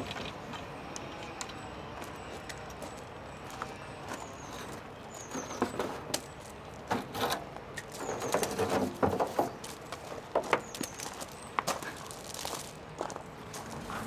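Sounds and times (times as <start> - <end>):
small birds chirping: 4.1 - 6.4, 9.4 - 13.6.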